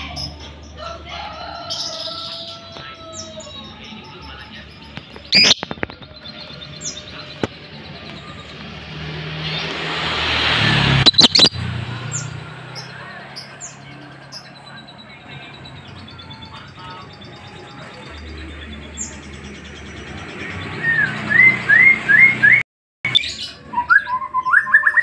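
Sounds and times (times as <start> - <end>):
lovebird chirping: 4.7 - 8.6, 10.9 - 12.4
rush of noise: 7.3 - 12.9.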